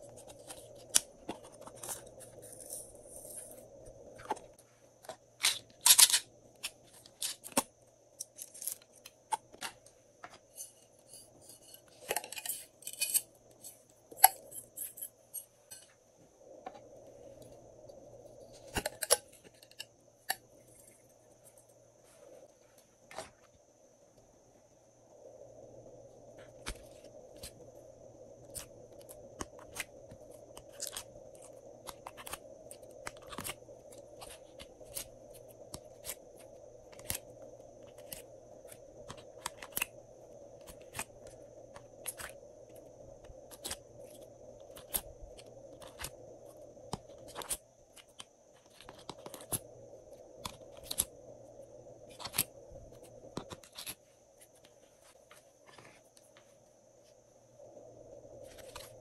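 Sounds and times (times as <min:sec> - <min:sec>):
faint background hum: 0:00.0 - 0:59.0.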